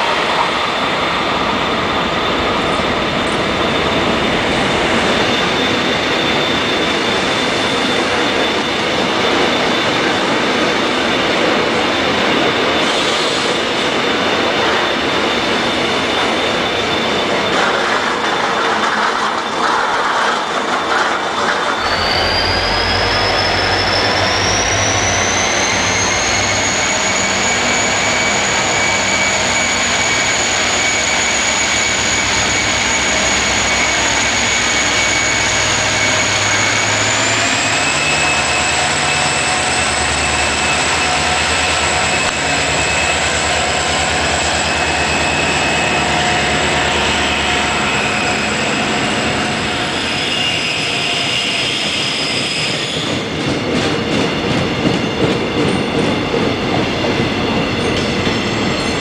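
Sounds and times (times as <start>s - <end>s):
diesel locomotive engine drone: 0.0s - 59.0s
high whine rising in pitch: 21.8s - 51.8s.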